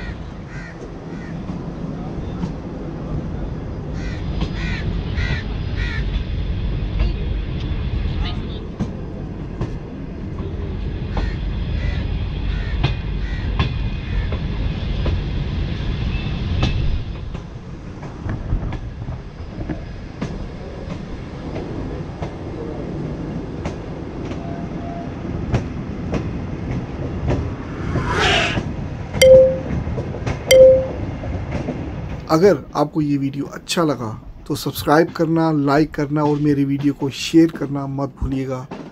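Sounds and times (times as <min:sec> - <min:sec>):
train rumbling on track: 0:00.0 - 0:29.4, 0:30.0 - 0:38.9
high squeal falling in pitch: 0:29.2 - 0:29.7, 0:30.5 - 0:31.0.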